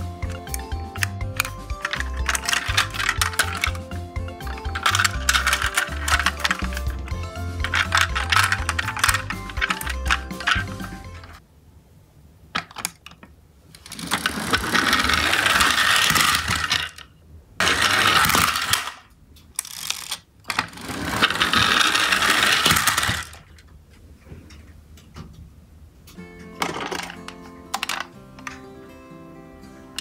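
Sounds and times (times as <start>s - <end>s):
toy truck motors whirring: 0.2s - 11.0s, 13.8s - 17.0s, 17.6s - 19.0s, 19.6s - 23.4s.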